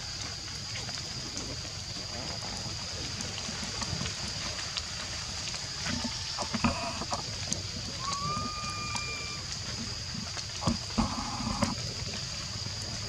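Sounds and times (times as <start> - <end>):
high drone of insects: 0.0 - 13.0
rising whistled call: 8.0 - 9.4.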